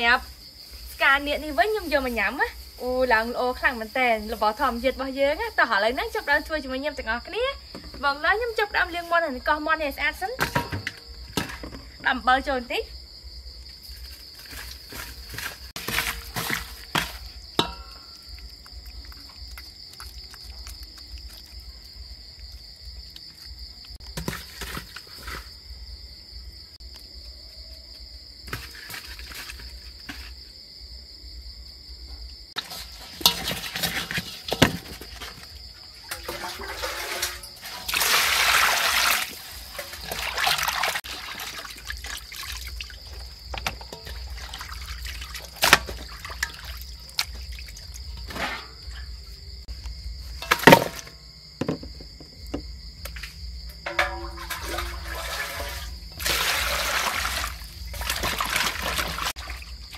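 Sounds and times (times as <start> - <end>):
water sloshing in a metal bowl: 0.0 - 12.7, 13.8 - 25.5, 32.6 - 49.6, 53.0 - 59.9
water pouring into a bowl: 36.0 - 43.3, 44.0 - 48.0, 53.9 - 59.9.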